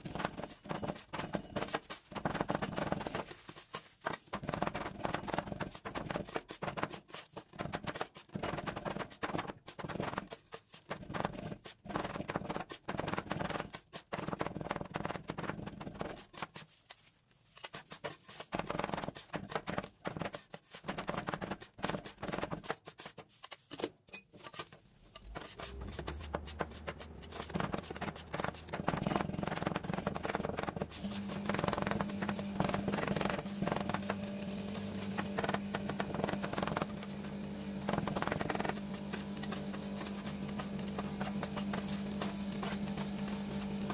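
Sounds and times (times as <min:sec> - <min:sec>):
spatulas scraping: 0:22.7 - 0:43.9.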